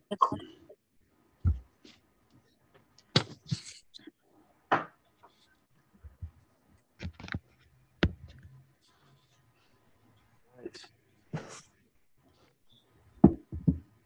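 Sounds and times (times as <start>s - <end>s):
laptop handling clicks and knocks: 7.0s - 8.4s.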